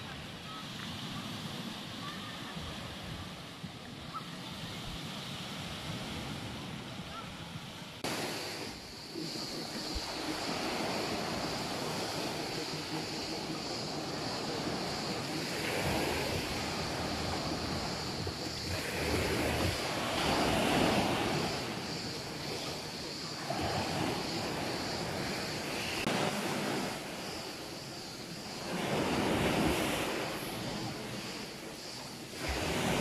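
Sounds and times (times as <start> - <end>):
waves breaking on pebble beach: 8.0 - 33.0.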